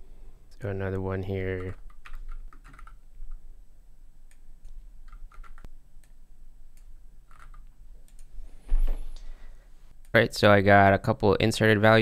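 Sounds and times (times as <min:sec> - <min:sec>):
typing on a keyboard: 0:01.6 - 0:03.0, 0:05.1 - 0:05.7, 0:07.3 - 0:08.3.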